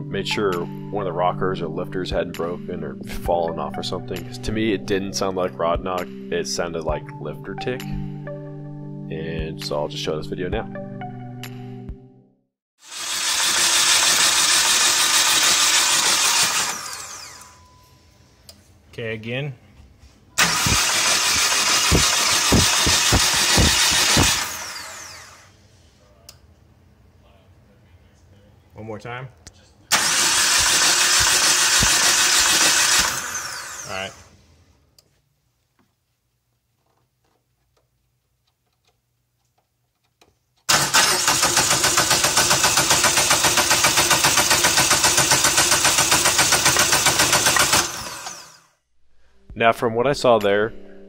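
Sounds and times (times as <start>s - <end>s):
engine winding down whine: 12.9s - 17.7s, 20.4s - 25.6s, 29.9s - 34.3s, 40.7s - 48.7s
engine clattering and knocking: 20.4s - 24.4s, 40.7s - 47.9s.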